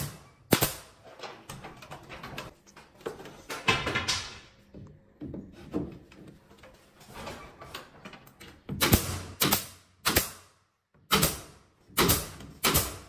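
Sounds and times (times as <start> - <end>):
nail gun firing with air hiss: 0.0 - 1.0, 8.7 - 13.0.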